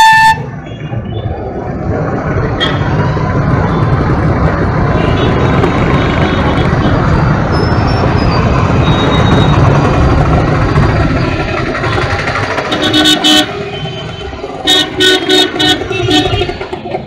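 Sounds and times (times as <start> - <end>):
vehicle horns honking: 0.0 - 0.8, 12.6 - 16.9
street traffic: 0.0 - 17.0
engine running: 1.8 - 17.0.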